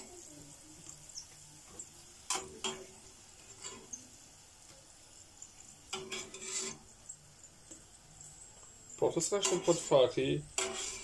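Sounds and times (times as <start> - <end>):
oil frying hiss: 0.0 - 11.0
metal spatula scraping a pot: 1.7 - 4.1, 5.8 - 7.1, 9.2 - 11.0.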